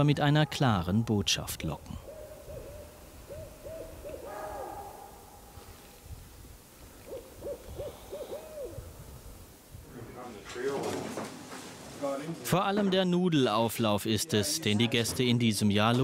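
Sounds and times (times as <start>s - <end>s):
owl hooting: 2.0s - 5.0s, 7.0s - 9.0s.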